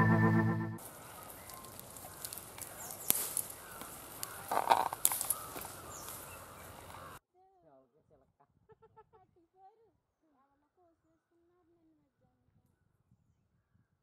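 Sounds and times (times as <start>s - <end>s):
intro music: 0.0s - 0.8s
branches snapping and rustling: 0.8s - 7.2s.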